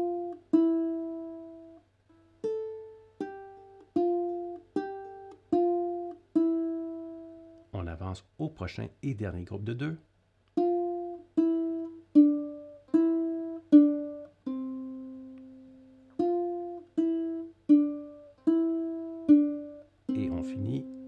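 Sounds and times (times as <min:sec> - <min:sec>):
ukulele notes picked slowly: 0:00.0 - 0:07.7, 0:10.6 - 0:21.0.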